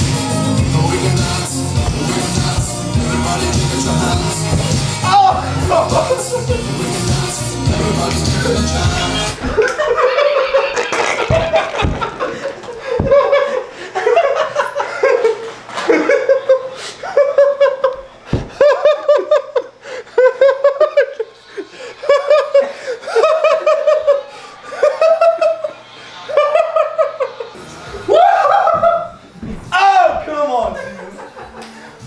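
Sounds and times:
low thumps: 1.0 - 6.1, 11.3 - 13.4
man laughing hard: 5.1 - 6.7, 9.4 - 21.3, 30.8 - 31.6.

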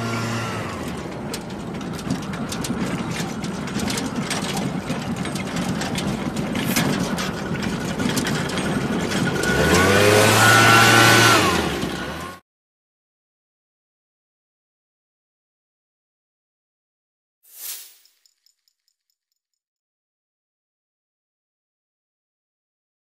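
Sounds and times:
push cart rumbling on asphalt: 0.0 - 12.4.

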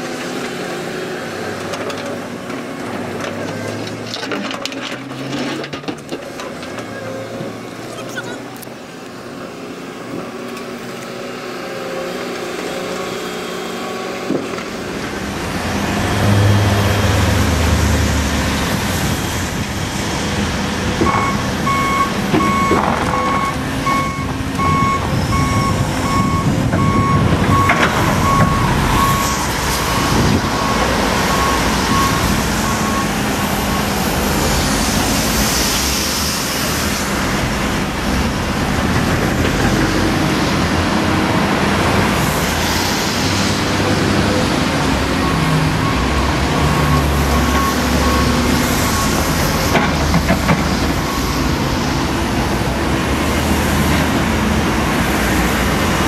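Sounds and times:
construction machinery diesel engines: 0.0 - 56.0
reversing alarm beeping: 21.0 - 34.0, 45.2 - 49.6.

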